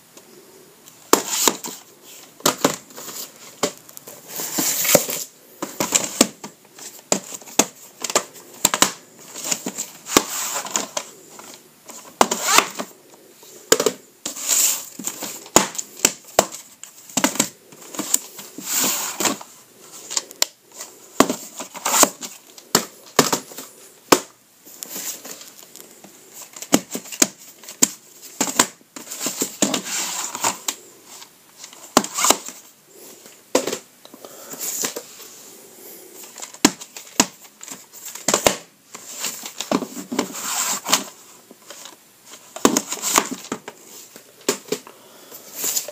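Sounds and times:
plastic cassette cases handled: 0:01.1 - 0:12.9, 0:13.7 - 0:35.1, 0:36.2 - 0:44.9.

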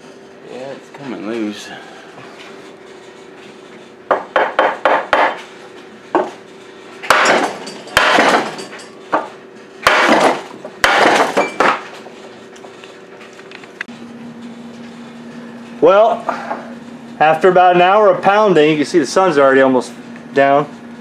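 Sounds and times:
wooden block knocking on metal: 0:04.1 - 0:05.4.

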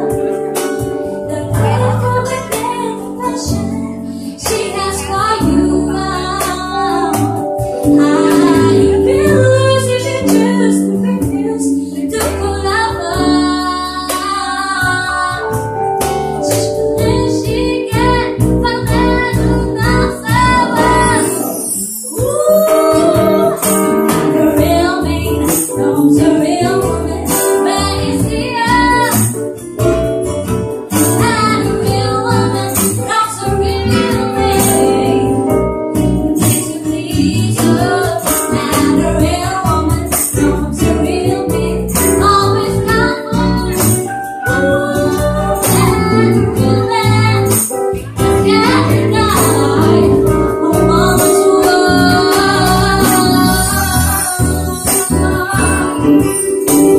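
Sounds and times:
acoustic guitar: 0:00.0 - 0:56.9
electric bass: 0:00.0 - 0:56.9
keyboard: 0:00.0 - 0:56.9
woman singing: 0:01.2 - 0:15.7, 0:16.4 - 0:29.4, 0:31.0 - 0:35.6, 0:36.3 - 0:56.9
light percussion beat: 0:14.0 - 0:56.9.

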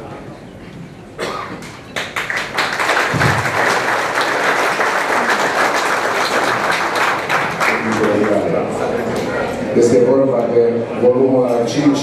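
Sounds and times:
crowd applauding: 0:01.6 - 0:09.2.

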